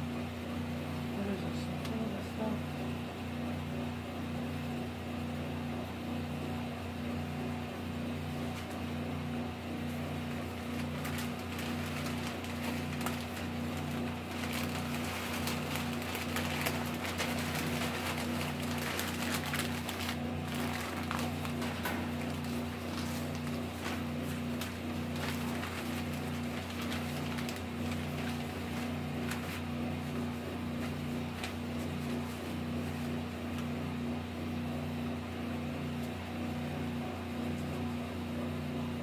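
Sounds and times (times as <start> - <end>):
pulsing electrical hum: 0.0 - 39.0
newspaper rustling and crumpling: 9.8 - 33.6.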